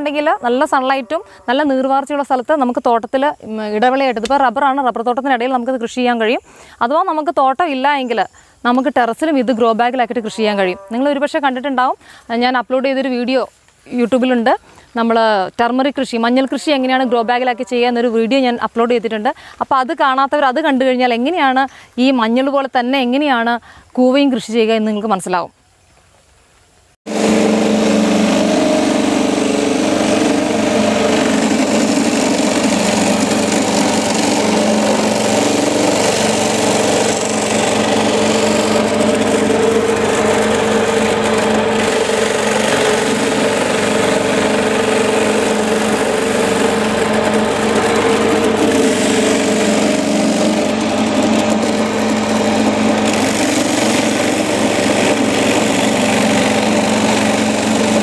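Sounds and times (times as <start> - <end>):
grating machine shredding roots: 27.1 - 58.0.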